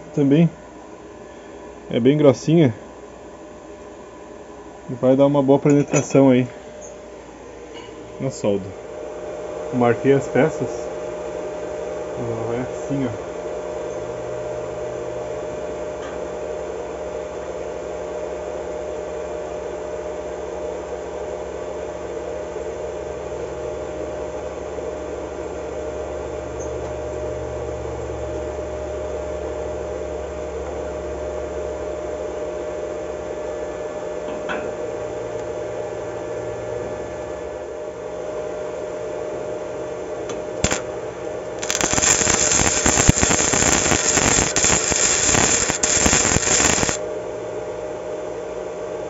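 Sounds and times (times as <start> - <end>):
welding machine humming with whine: 40.3 - 47.1.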